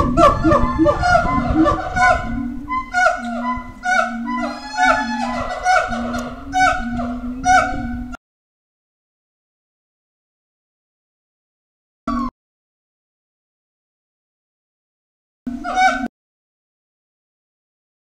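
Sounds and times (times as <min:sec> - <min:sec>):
gibbons hooting calls: 0:00.0 - 0:08.2, 0:15.5 - 0:16.1.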